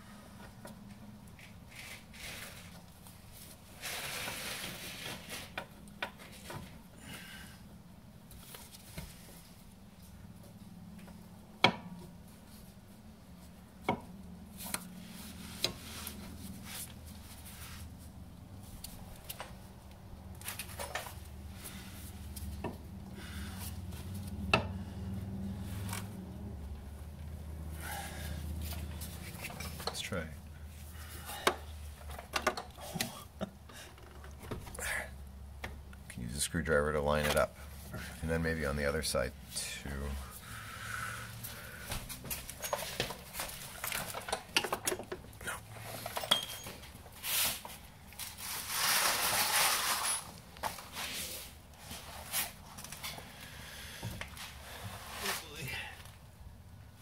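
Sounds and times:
metal scraping: 0:48.3 - 0:50.4.

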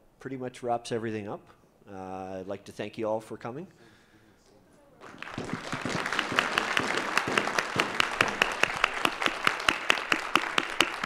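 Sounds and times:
audience applauding: 0:05.0 - 0:11.0
close quick regular clapping: 0:05.0 - 0:11.0.

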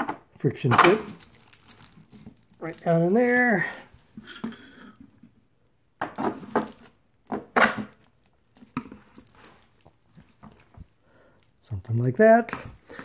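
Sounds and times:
plastic sheeting crinkling: 0:01.0 - 0:03.6, 0:07.9 - 0:11.0.

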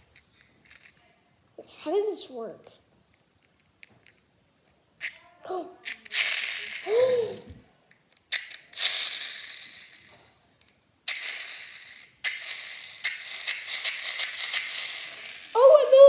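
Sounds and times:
plastic toy clicking and whirring: 0:00.1 - 0:00.9, 0:05.0 - 0:16.0.

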